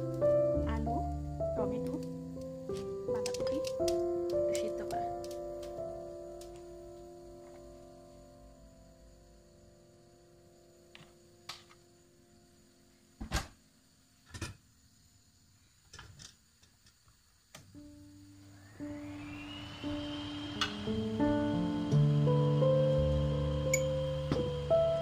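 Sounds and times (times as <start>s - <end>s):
background music: 0.0s - 9.4s, 18.1s - 25.0s.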